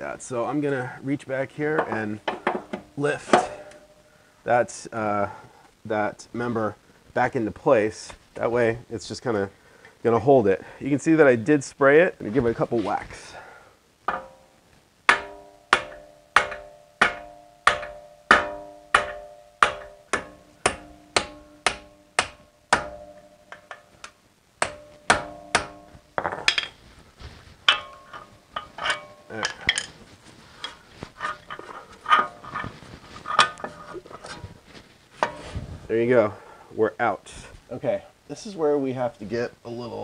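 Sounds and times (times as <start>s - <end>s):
light irregular metal taps: 1.8s - 3.8s
hammer striking metal punch: 14.1s - 14.4s, 15.1s - 23.8s, 24.6s - 26.7s, 27.7s - 29.9s.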